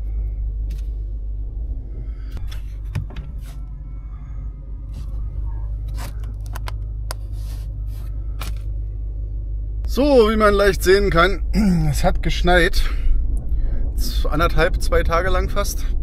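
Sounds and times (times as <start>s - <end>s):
vehicle engine idling: 0.0s - 16.0s
sharp clicks and knocks: 6.0s - 7.2s.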